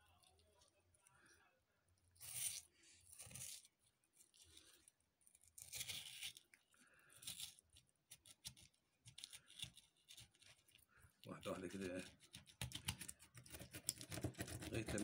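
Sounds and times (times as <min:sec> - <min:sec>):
knife scraping fish bones: 0:02.2 - 0:04.4, 0:05.3 - 0:06.5, 0:07.1 - 0:10.8, 0:11.8 - 0:15.0.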